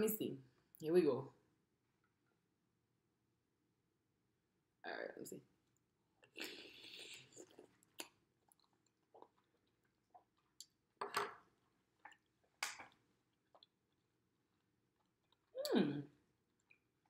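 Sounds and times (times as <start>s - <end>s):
soft chewing: 5.6s - 11.0s, 11.6s - 17.0s.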